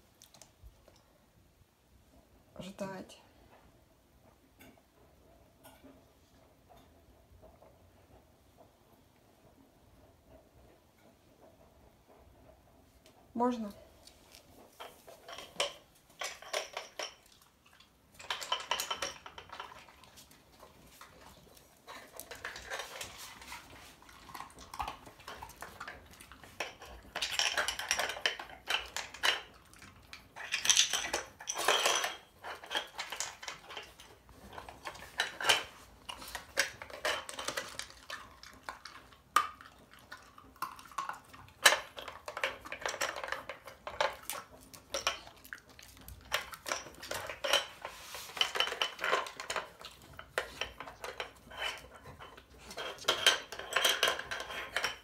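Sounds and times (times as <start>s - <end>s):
plastic toy clattering on tile floor: 14.8s - 55.0s.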